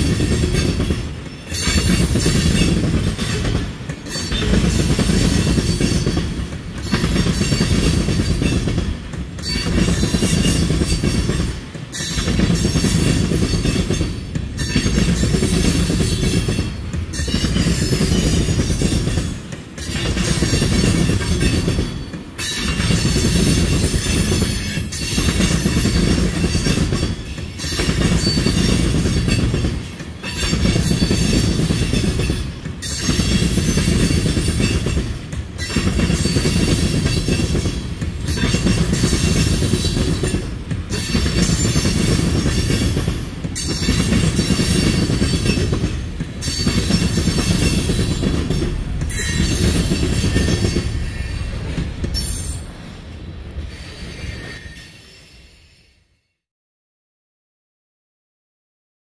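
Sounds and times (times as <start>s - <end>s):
train wheels rumbling and clattering: 0.0s - 55.6s
high wheel squeal: 53.6s - 56.0s.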